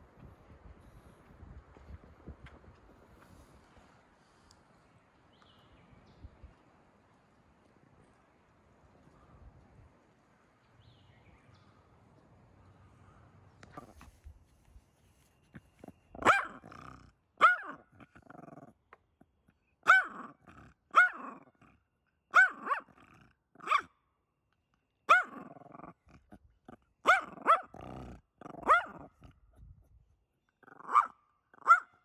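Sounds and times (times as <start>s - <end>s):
dog barking: 16.2s - 17.8s, 19.8s - 21.4s, 22.3s - 22.9s, 23.6s - 23.9s, 25.1s - 25.4s, 27.0s - 27.9s, 28.6s - 29.1s, 30.8s - 32.0s.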